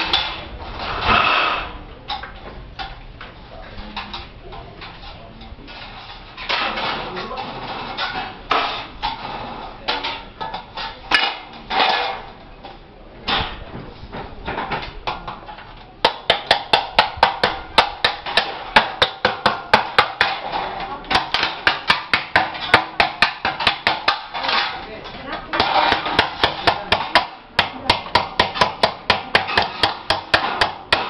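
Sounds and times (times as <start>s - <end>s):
hammer striking ceiling frame: 16.0s - 20.5s, 21.1s - 24.5s, 25.6s - 31.0s.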